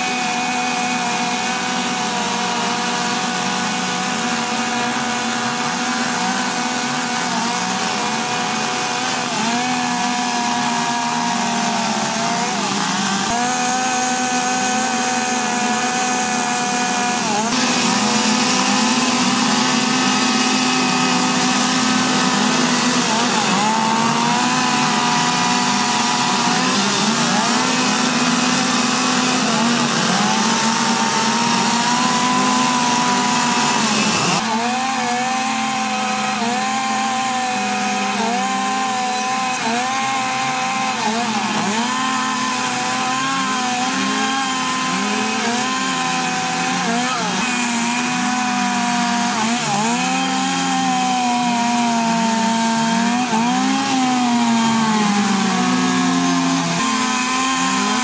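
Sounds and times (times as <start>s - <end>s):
chainsaw carving wood: 0.0s - 58.0s.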